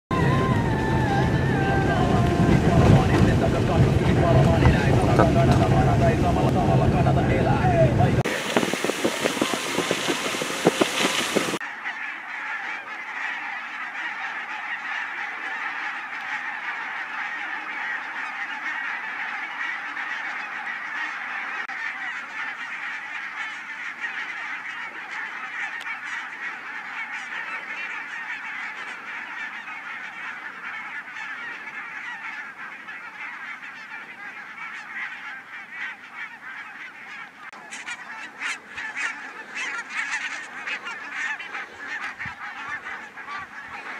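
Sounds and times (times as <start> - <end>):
flock of geese honking: 0.1 - 43.9.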